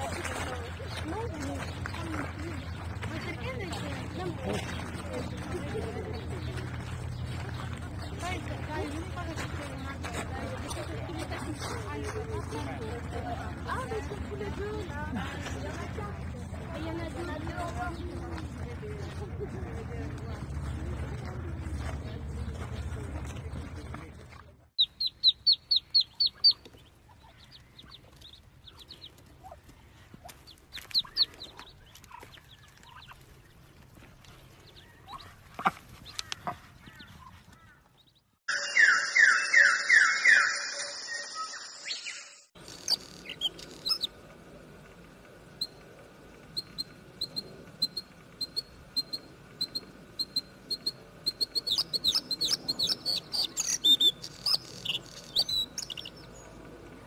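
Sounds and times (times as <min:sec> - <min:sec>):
ducklings peeping: 0:23.4 - 0:33.6, 0:34.3 - 0:38.2, 0:42.6 - 0:44.2, 0:46.5 - 0:56.6
bird singing: 0:36.1 - 0:44.1, 0:46.4 - 0:57.0.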